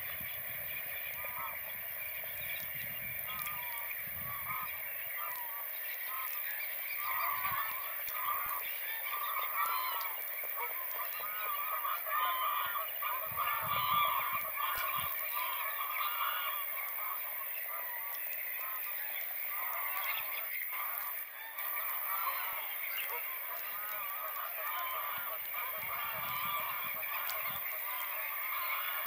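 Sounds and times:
flock of waders calling: 0:00.0 - 0:29.0
geese honking: 0:00.0 - 0:29.0.

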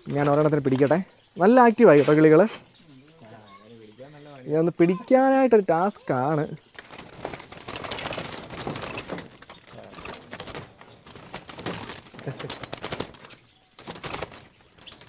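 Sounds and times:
doves flapping wings: 0:00.0 - 0:01.0, 0:06.6 - 0:15.0.

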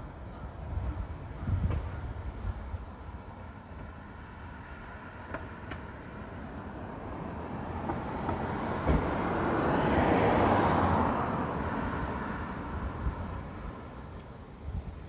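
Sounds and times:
vehicle passing by: 0:04.4 - 0:14.0
low thump: 0:08.3 - 0:09.2.

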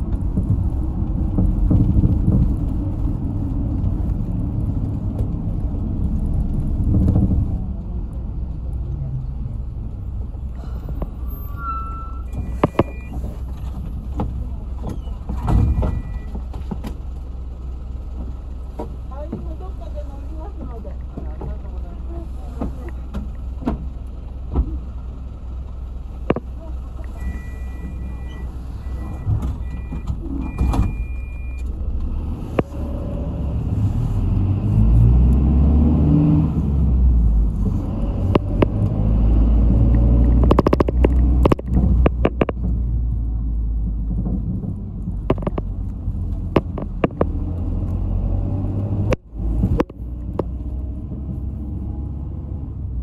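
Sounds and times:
bus engine and road rumble: 0:00.0 - 0:53.0
two-tone electronic beeping: 0:11.6 - 0:13.2, 0:27.2 - 0:31.6.

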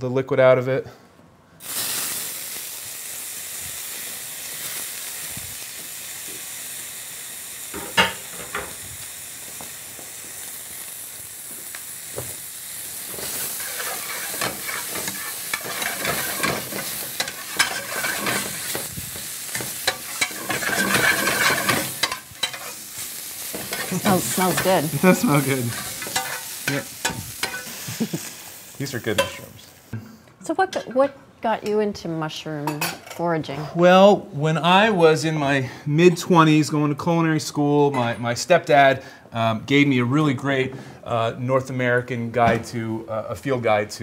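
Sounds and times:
mushrooms sizzling in oil: 0:01.6 - 0:29.9
stirring and scraping in pan: 0:13.1 - 0:27.8.

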